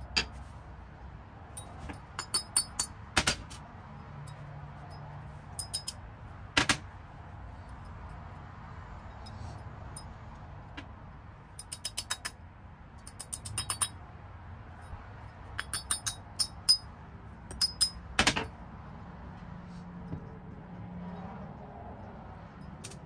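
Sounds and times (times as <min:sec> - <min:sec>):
small steel parts clicking: 0:01.6 - 0:03.6, 0:05.6 - 0:06.0, 0:11.6 - 0:12.4, 0:13.0 - 0:14.0, 0:15.6 - 0:16.9, 0:17.5 - 0:18.5, 0:22.6 - 0:23.0.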